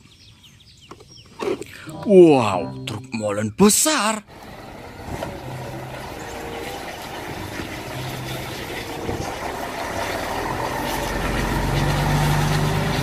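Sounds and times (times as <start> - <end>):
truck diesel engine: 4.3 - 13.0.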